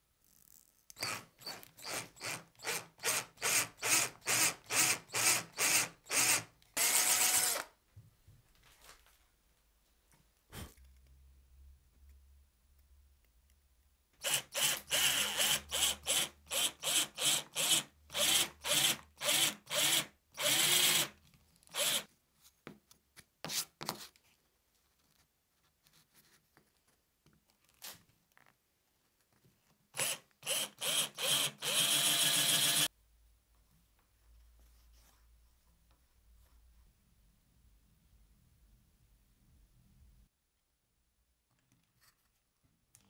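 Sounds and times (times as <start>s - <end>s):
electric drill boring into wood: 1.0s - 7.7s, 14.2s - 21.1s, 21.8s - 22.1s, 30.0s - 32.9s.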